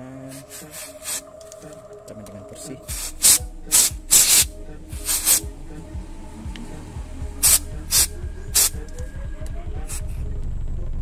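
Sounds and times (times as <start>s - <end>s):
background music: 0.0s - 11.0s
aerosol spray hissing: 0.3s - 1.3s, 2.9s - 5.6s, 7.4s - 8.9s.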